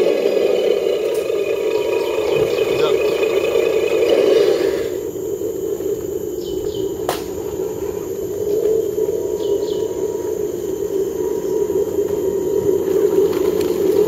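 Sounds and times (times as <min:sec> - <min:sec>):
insect drone: 0:00.0 - 0:14.0
bird chirps: 0:01.4 - 0:03.9, 0:06.3 - 0:13.5.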